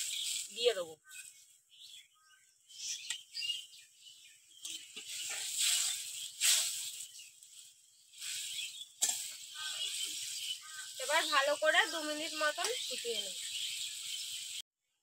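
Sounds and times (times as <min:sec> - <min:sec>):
metal spatula scraping a pan: 0:04.7 - 0:07.0, 0:08.2 - 0:11.2
rattling and hissing: 0:04.8 - 0:07.1.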